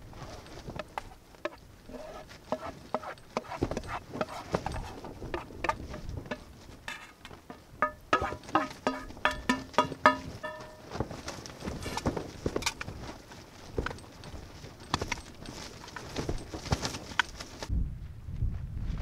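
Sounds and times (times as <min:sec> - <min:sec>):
wooden spoon scraping metal pan: 0:00.8 - 0:07.2, 0:07.8 - 0:10.8
sharp ringing taps on metal: 0:07.8 - 0:11.0.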